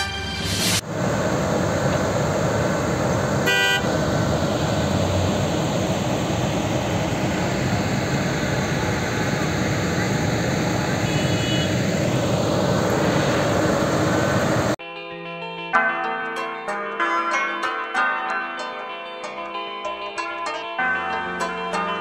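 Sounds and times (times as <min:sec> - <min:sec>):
road traffic noise: 0:00.0 - 0:14.8
vehicle horn toot: 0:03.4 - 0:04.0, 0:11.0 - 0:12.2.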